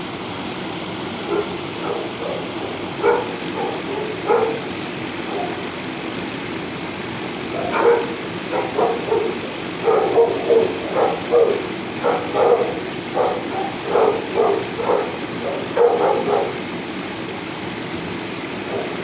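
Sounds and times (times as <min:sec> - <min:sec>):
dog barking: 0:01.3 - 0:04.7, 0:05.3 - 0:05.6, 0:07.5 - 0:16.6, 0:18.7 - 0:19.0.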